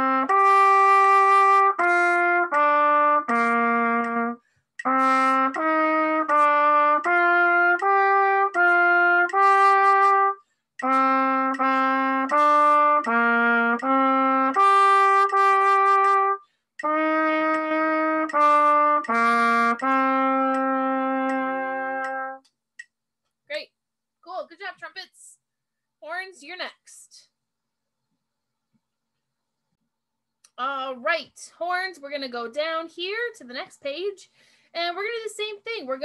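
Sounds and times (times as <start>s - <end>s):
solo trumpet melody: 0.0s - 22.4s.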